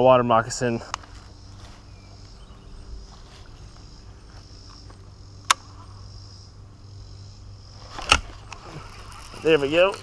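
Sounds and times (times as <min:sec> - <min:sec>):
insects chorus: 0:00.0 - 0:10.0
sharp click: 0:04.7 - 0:05.7.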